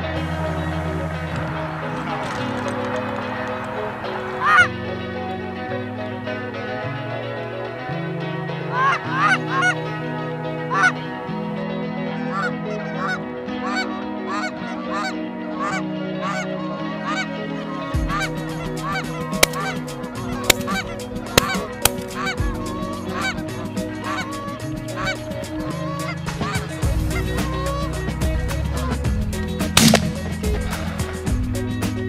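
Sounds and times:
background music: 0.0 - 32.0
geese honking: 1.3 - 4.8, 8.7 - 9.9, 10.6 - 11.0, 12.1 - 29.0
sharp clicks: 19.4 - 19.7, 21.4 - 22.1.

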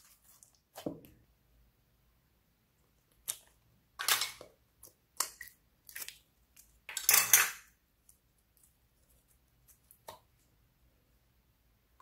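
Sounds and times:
squelching slime: 0.0 - 1.2, 2.9 - 6.9, 7.9 - 10.7.

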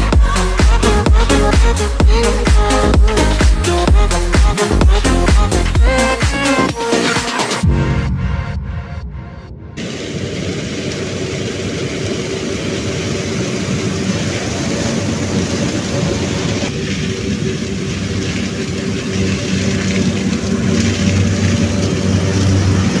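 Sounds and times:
combine harvester engine drone: 9.7 - 23.0.

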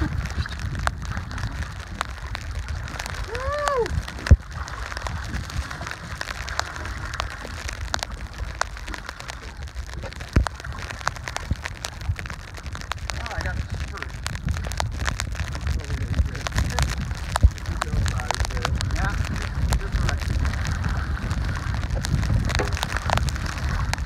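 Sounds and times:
fish thrashing in water: 0.0 - 24.0
wind on microphone: 0.0 - 24.0
short cry: 3.2 - 3.9.

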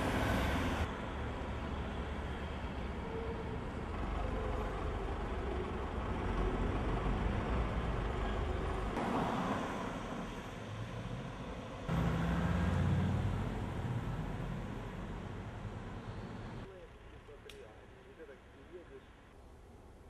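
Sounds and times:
cars passing on road: 0.0 - 17.2
low engine hum: 10.0 - 17.2.

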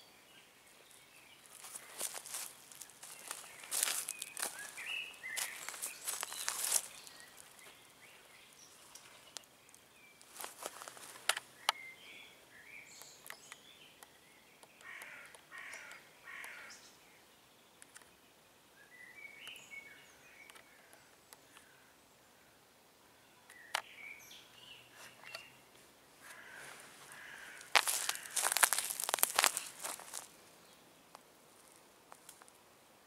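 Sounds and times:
rough bird calls: 0.0 - 17.0, 23.3 - 30.9
birds chirping: 0.0 - 32.6.

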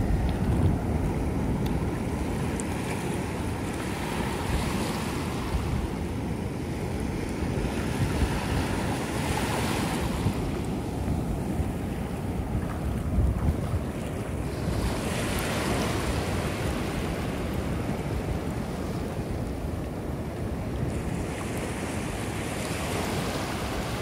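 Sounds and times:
ocean surf breaking: 0.0 - 24.0
wind rumbling on microphone: 0.0 - 24.0.

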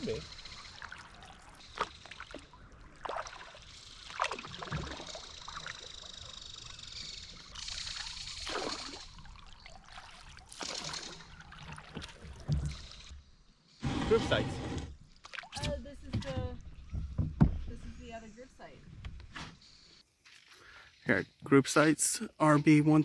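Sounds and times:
paddles splashing in water: 0.0 - 6.2, 7.4 - 13.1, 15.1 - 16.7.

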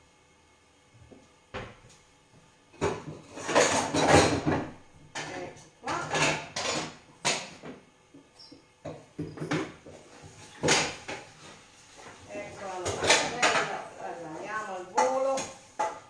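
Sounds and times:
pots and pans clanking: 2.8 - 7.8, 8.8 - 14.0, 14.8 - 16.0.

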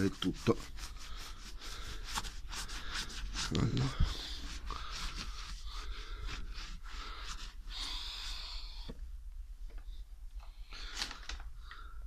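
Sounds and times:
cloth rubbing on plastic bumper: 0.0 - 7.8.

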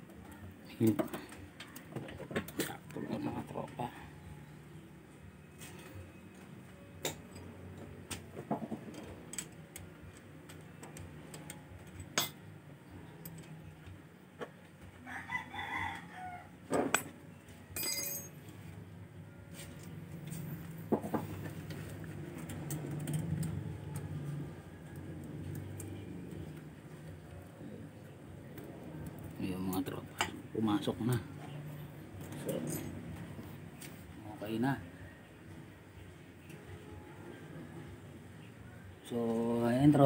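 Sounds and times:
rooster crowing: 15.0 - 16.6.

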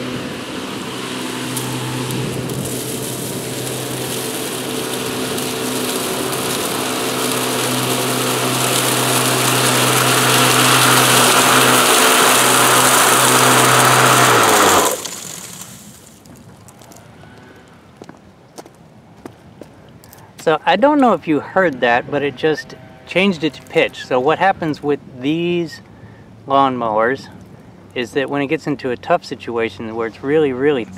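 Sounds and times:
electric lawn mower running: 0.0 - 16.2, 20.8 - 24.8.

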